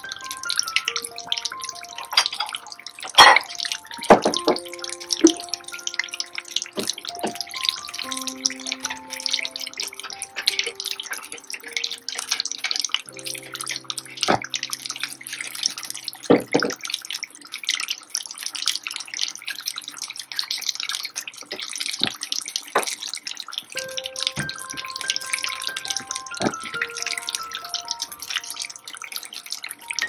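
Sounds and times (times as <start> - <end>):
oil popping: 0.0 - 18.9
soft background music: 0.0 - 20.8, 23.7 - 30.0
fish deep-frying in oil: 0.0 - 30.0.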